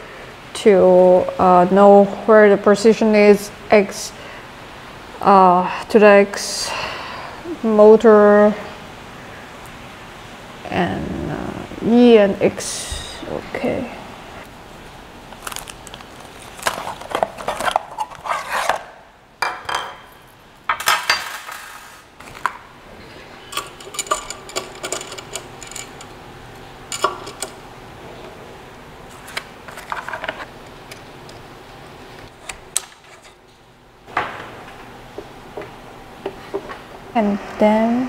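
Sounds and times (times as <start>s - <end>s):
metal parts clinking: 23.5s - 26.2s.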